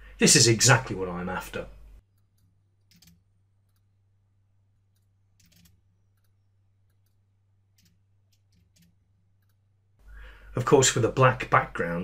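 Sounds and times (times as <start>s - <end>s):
mouse and keyboard clicks: 2.2s - 3.9s, 4.9s - 7.2s.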